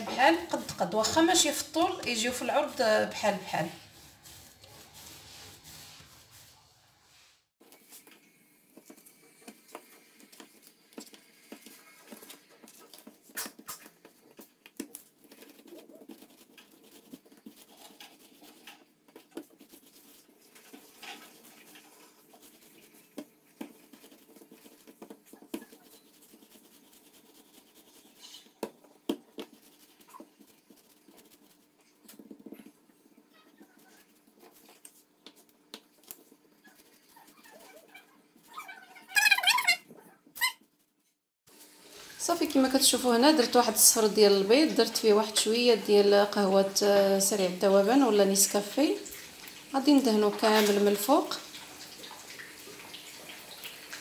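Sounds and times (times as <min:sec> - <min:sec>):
hands patting and rolling dough: 0:07.7 - 0:38.7.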